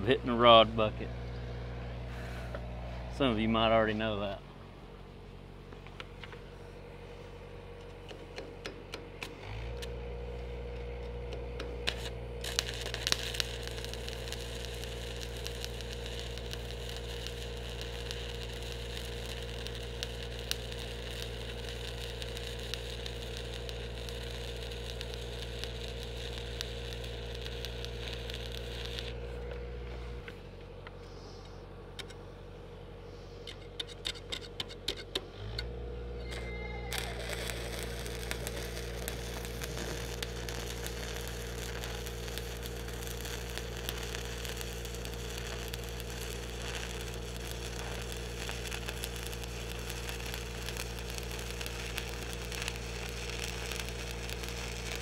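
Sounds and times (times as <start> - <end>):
engine humming under load: 0.0 - 55.0
welding arc crackling: 8.0 - 29.6, 36.2 - 55.0.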